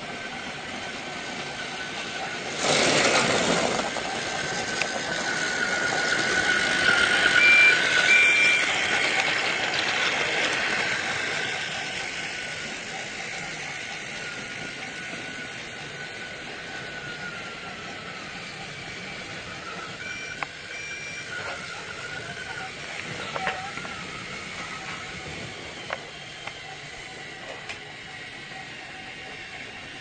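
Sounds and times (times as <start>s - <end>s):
steady high whine: 0.0s - 30.0s
short high tones: 6.9s - 8.9s.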